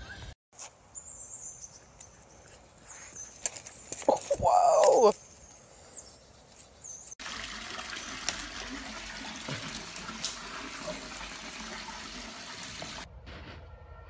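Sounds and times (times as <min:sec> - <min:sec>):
running water rushing: 0:07.2 - 0:13.1.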